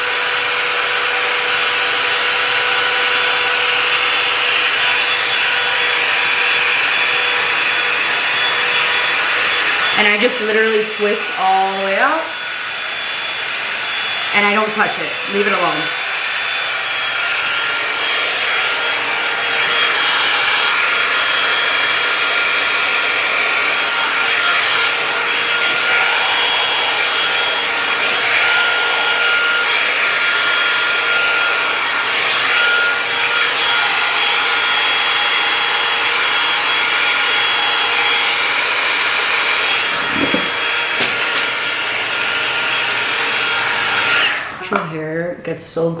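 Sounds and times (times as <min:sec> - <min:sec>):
hot-air brush blowing with motor whine: 0:00.0 - 0:45.4
bristles brushing through hair: 0:39.9 - 0:41.6.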